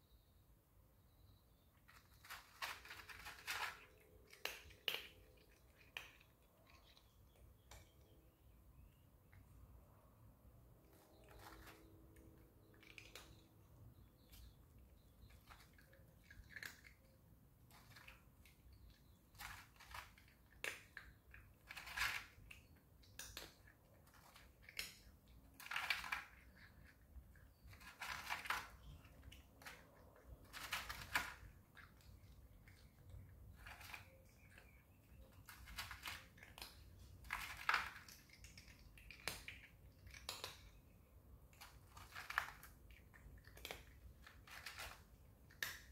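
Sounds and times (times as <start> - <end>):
cat crunching food: 1.8 - 8.1, 10.7 - 45.9.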